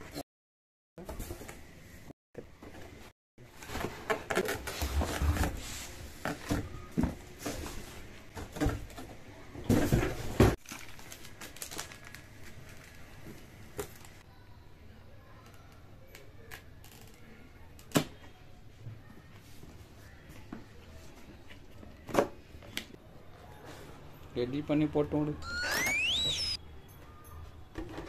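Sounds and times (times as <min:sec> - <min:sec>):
cardboard rustling and scraping: 0:03.5 - 0:06.7.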